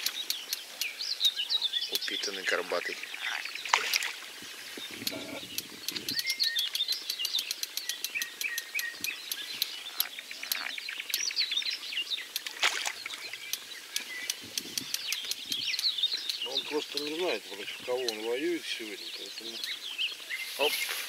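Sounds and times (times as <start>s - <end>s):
songbirds chirping: 0.0s - 21.0s
fish splashing in water: 3.4s - 4.5s, 12.4s - 13.5s.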